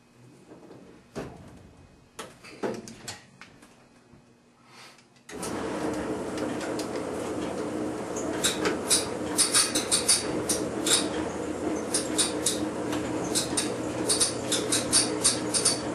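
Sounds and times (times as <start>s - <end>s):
furnace motor whirring: 5.3s - 15.9s.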